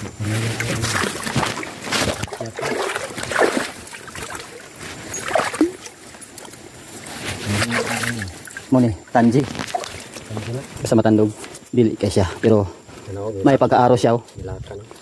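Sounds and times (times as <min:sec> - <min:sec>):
creek water splashing: 0:00.0 - 0:11.6.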